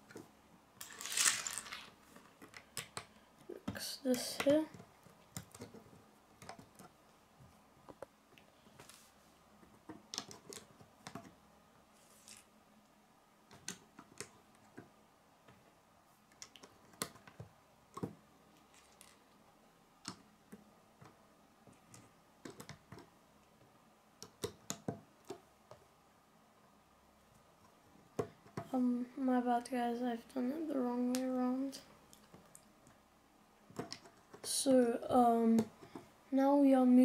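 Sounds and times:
plastic bricks clicking: 0:00.8 - 0:03.1, 0:33.7 - 0:34.5.

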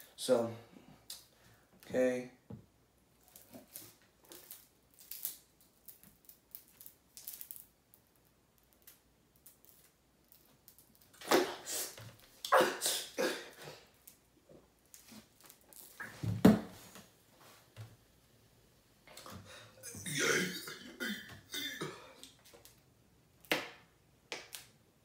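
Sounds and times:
person gasping and coughing: 0:12.5 - 0:13.9, 0:19.3 - 0:22.2.

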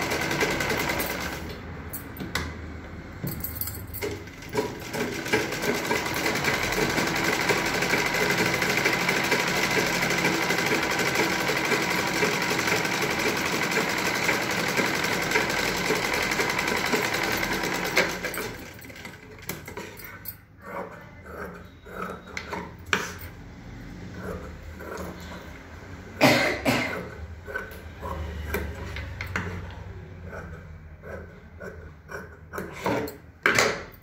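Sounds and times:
sewing machine stitching: 0:00.0 - 0:01.6, 0:04.0 - 0:20.2.

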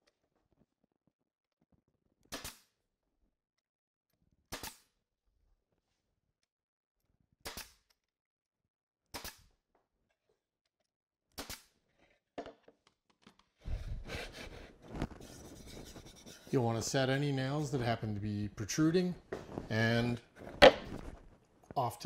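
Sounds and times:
nail gun firing into plywood: 0:04.5 - 0:04.8, 0:09.1 - 0:09.4.

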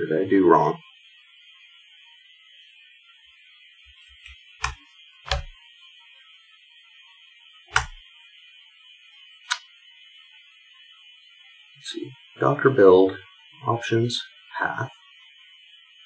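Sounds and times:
keyboard keys clicking: 0:04.6 - 0:05.5, 0:07.7 - 0:08.0.

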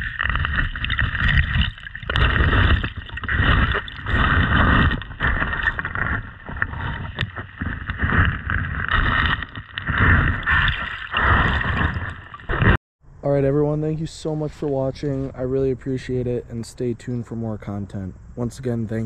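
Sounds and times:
muffled water sloshing: 0:00.0 - 0:12.8.

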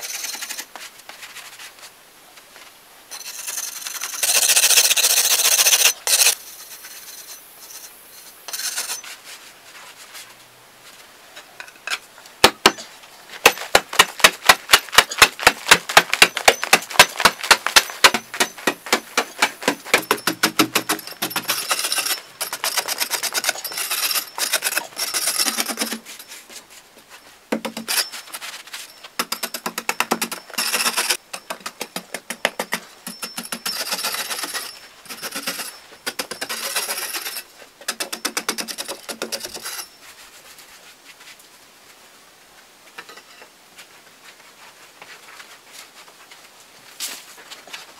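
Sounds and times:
metal blade scraping clay: 0:03.2 - 0:09.1, 0:15.0 - 0:26.4, 0:33.1 - 0:40.0
hoe chopping dirt: 0:12.4 - 0:26.1, 0:29.2 - 0:39.8
sharp even tool strikes: 0:13.5 - 0:21.5.

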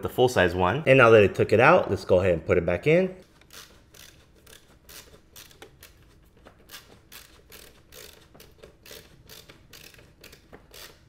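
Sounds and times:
ratcheting screwdriver clicking: 0:03.4 - 0:11.0.

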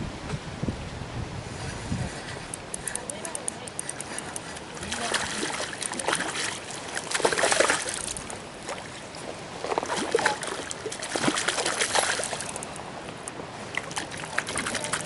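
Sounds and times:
fish splashing in water: 0:03.9 - 0:12.8, 0:13.6 - 0:15.0.

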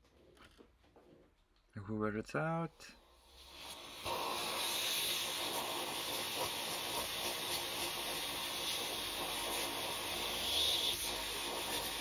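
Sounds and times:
vacuum suction hiss: 0:02.6 - 0:12.0.

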